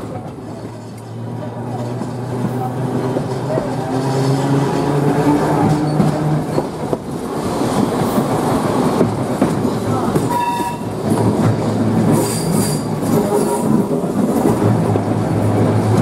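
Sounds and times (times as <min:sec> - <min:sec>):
tram rattling on track: 0:00.0 - 0:16.0.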